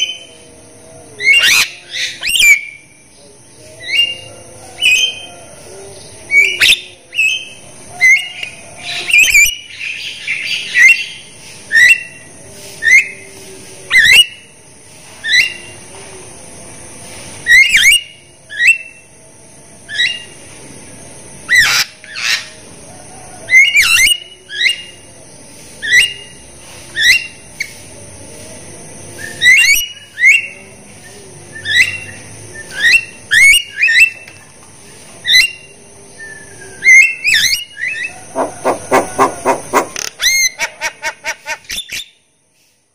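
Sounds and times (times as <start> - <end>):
myna calling: 35.2 - 41.8.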